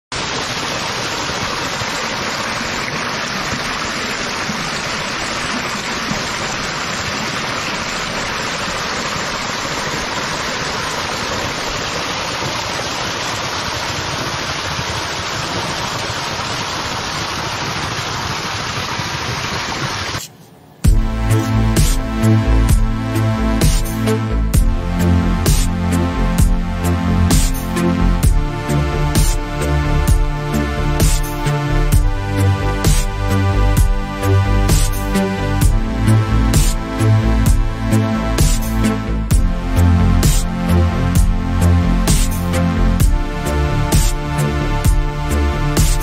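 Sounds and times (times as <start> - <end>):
water rushing through turbine: 0.1 - 22.8.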